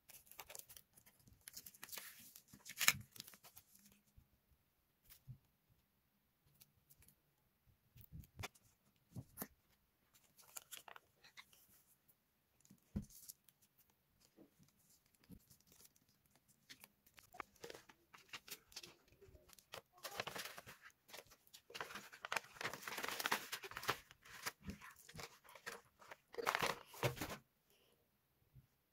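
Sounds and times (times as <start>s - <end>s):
paper rustling and crinkling: 0.0s - 4.0s, 10.1s - 11.8s, 12.6s - 27.4s.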